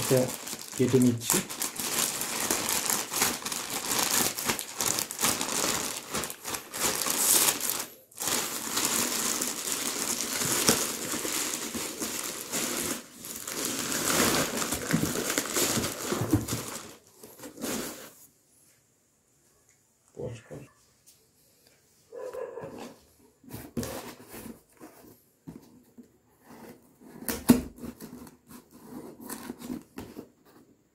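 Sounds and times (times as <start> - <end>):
plastic mailer bag crinkling: 0.0 - 17.9.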